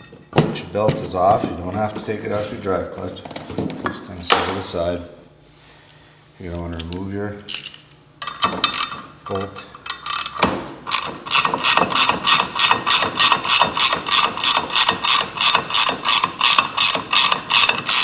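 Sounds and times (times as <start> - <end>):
ratchet wrench clicking: 9.8 - 18.0.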